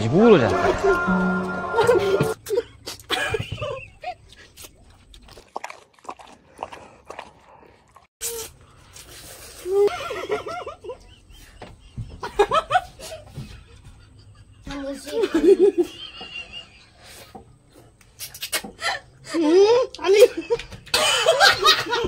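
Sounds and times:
people slurping and chewing noodles: 0:01.8 - 0:10.4.

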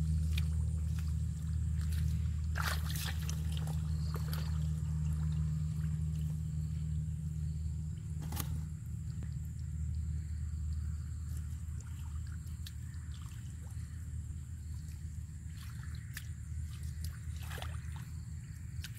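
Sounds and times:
water sloshing splashes: 0:00.0 - 0:07.0, 0:11.0 - 0:18.9
feet wading in muddy water: 0:00.0 - 0:18.9
steady low hum: 0:00.0 - 0:18.9.

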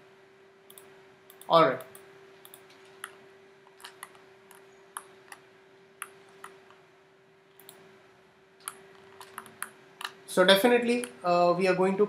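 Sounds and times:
faint steady hum: 0:00.0 - 0:12.0
computer mouse clicking: 0:00.7 - 0:05.4, 0:06.0 - 0:06.8, 0:07.6 - 0:07.8, 0:08.6 - 0:10.2.

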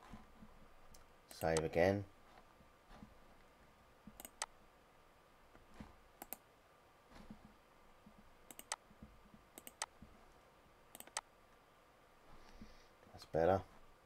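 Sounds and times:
faint computer mouse clicks: 0:04.2 - 0:04.5, 0:06.2 - 0:06.4, 0:08.5 - 0:08.8, 0:09.6 - 0:09.9, 0:10.9 - 0:11.3.

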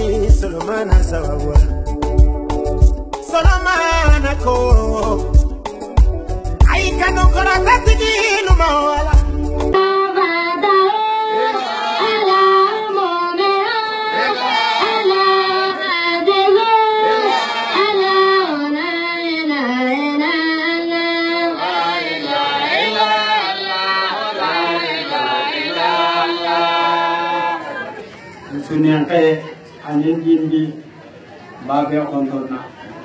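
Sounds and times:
person singing slow melody: 0:03.3 - 0:05.6, 0:06.6 - 0:13.9.

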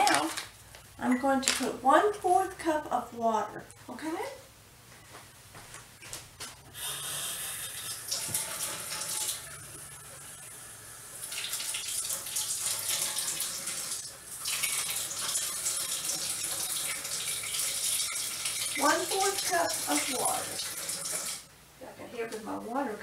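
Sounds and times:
tap water filling cup: 0:07.8 - 0:09.4.

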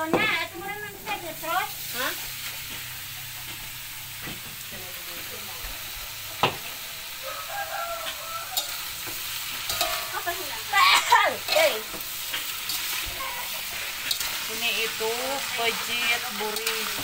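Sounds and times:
chicken sizzling in a wok: 0:00.0 - 0:17.0
metal spatula scraping a wok: 0:05.8 - 0:17.0.

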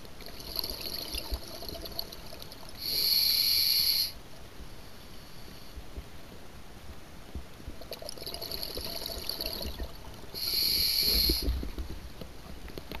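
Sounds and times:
bubbling crackle: 0:00.0 - 0:04.1, 0:07.7 - 0:13.0
diver breathing through regulator: 0:02.8 - 0:04.2, 0:10.4 - 0:11.6.

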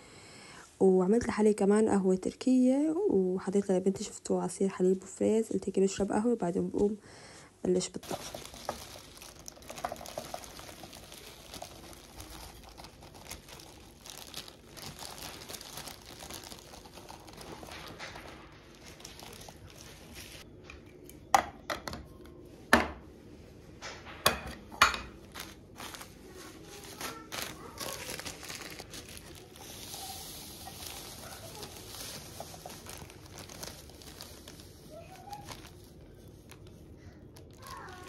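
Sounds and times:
spice pouring into canister: 0:08.0 - 0:14.8, 0:27.1 - 0:34.8
plastic bag crinkling: 0:08.0 - 0:20.5, 0:25.2 - 0:38.0.

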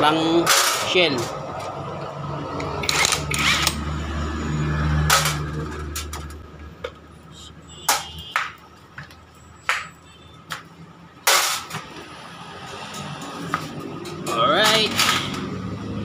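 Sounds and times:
metal parts clinking: 0:14.0 - 0:15.5.

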